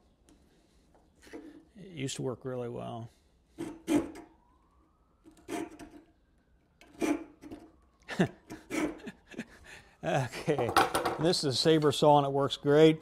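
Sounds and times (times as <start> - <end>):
hand saw rasping on wood: 8.5 - 9.1.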